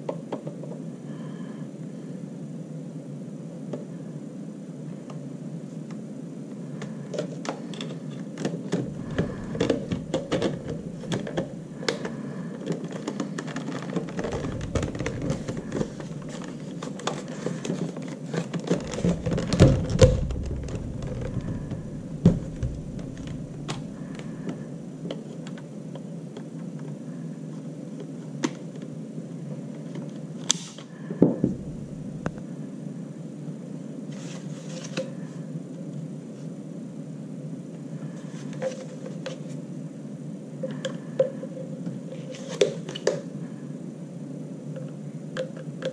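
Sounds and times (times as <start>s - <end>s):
plastic parts clicking and rattling: 7.1s - 27.0s.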